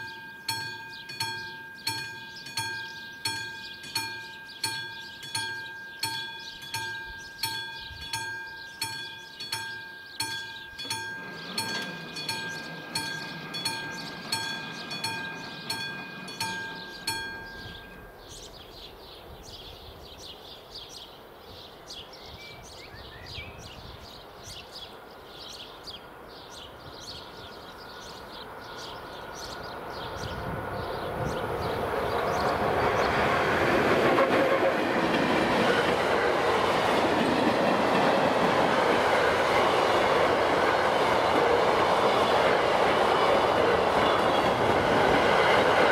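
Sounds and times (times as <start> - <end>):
level crossing warning bell: 0.0 - 18.5
approaching train rumble: 10.2 - 20.9, 21.6 - 45.9.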